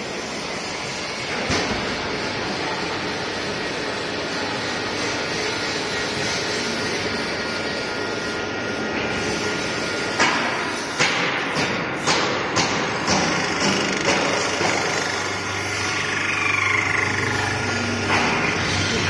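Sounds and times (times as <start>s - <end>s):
drilling machine running: 12.9s - 19.0s.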